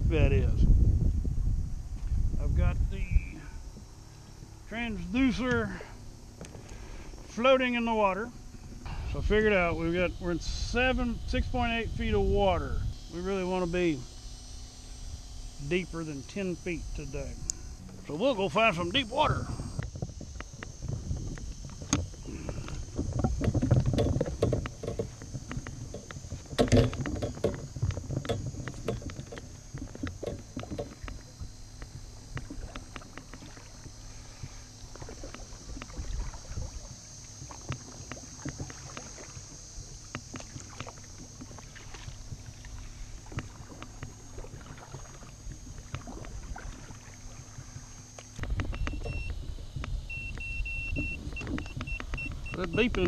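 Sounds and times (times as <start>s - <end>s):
paddle strokes splashing water: 15.8s - 53.0s
paddle knocking against boat: 17.8s - 53.0s.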